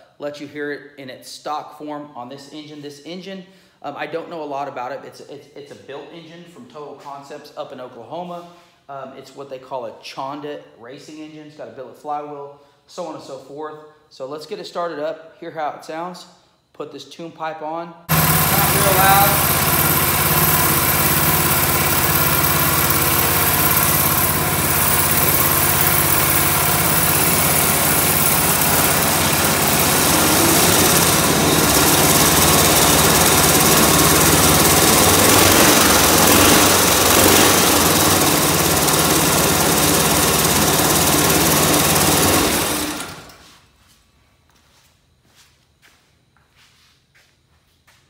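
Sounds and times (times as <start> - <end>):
go-kart engine running: 18.1 - 43.4.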